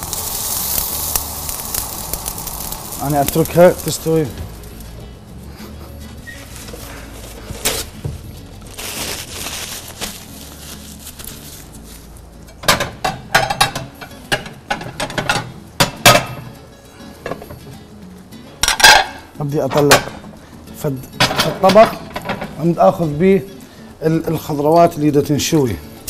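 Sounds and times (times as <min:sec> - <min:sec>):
vegetables sizzling on grill: 0:00.0 - 0:26.0
dishes and utensils clinking: 0:12.4 - 0:17.7, 0:18.6 - 0:20.3, 0:21.0 - 0:23.2.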